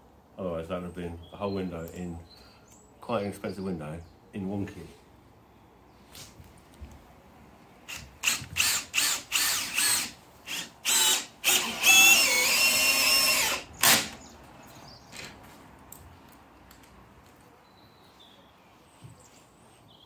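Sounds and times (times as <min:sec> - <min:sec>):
cordless drill whining: 0:07.9 - 0:14.2.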